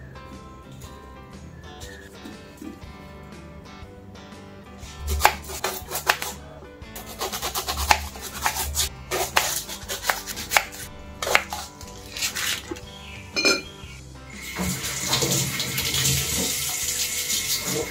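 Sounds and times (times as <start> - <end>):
knife chopping on wooden board: 5.0 - 6.4, 7.0 - 12.8
steel bowl clink: 13.4 - 13.8.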